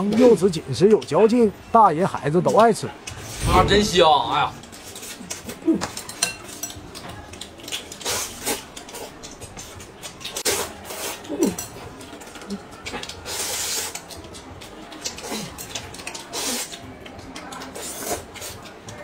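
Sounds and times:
chewing: 0:04.6 - 0:19.0
slurping noodles: 0:16.2 - 0:16.7, 0:17.7 - 0:18.6.

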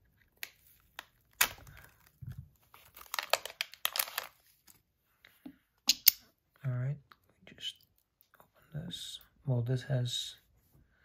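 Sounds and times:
plastic bag crinkling: 0:00.6 - 0:04.8.

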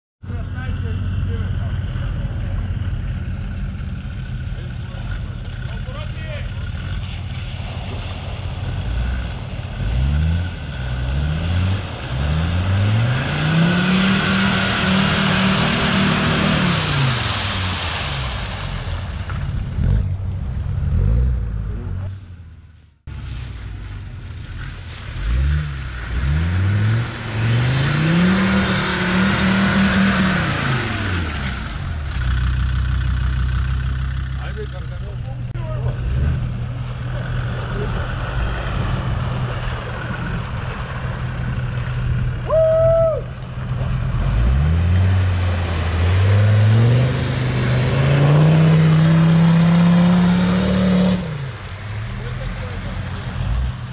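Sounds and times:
diesel engine revving: 0:00.2 - 0:53.9.

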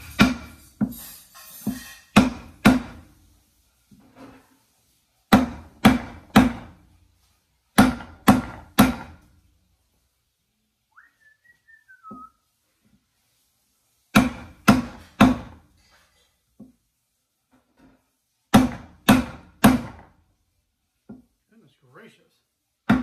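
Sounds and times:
hammer striking wood: 0:00.0 - 0:00.9, 0:01.6 - 0:03.1, 0:05.3 - 0:06.8, 0:07.8 - 0:09.2, 0:14.1 - 0:15.6, 0:18.5 - 0:20.2
whistle falling in pitch: 0:11.0 - 0:12.4.

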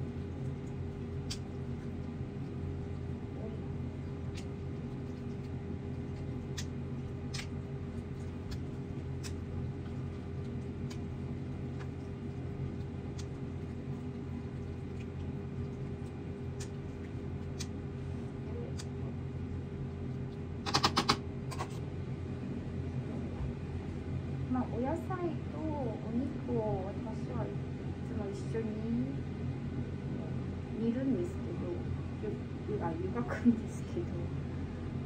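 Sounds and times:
kitchen appliance humming: 0:00.0 - 0:35.0
rapid clatter of clicks: 0:20.6 - 0:21.7.

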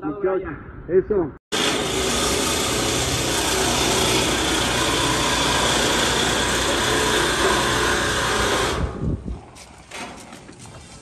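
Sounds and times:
machine motor running loudly: 0:01.5 - 0:09.0.

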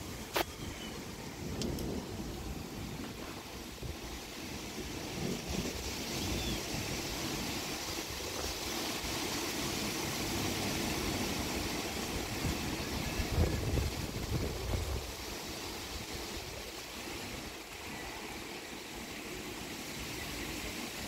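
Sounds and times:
steady rain falling: 0:00.0 - 0:21.0
wind buffeting microphone: 0:10.4 - 0:16.8.

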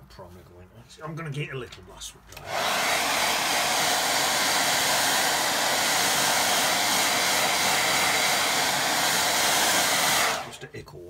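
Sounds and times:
hair dryer running: 0:02.4 - 0:10.6.

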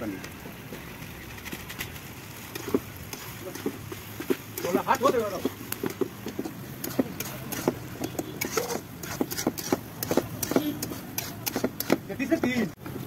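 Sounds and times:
metal spatula scraping a pan: 0:02.4 - 0:12.4.

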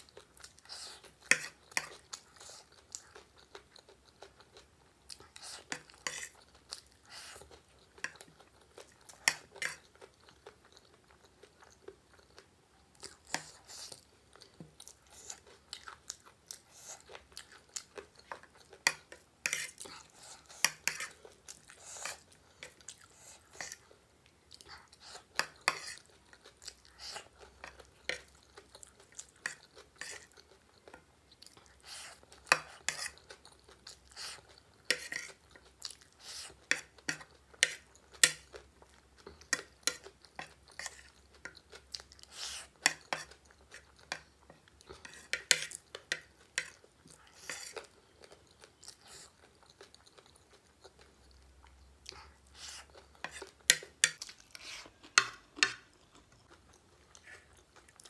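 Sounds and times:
chewing crunchy snack: 0:00.0 - 0:58.0
metal spoon scraping a plate: 0:34.9 - 0:35.3.

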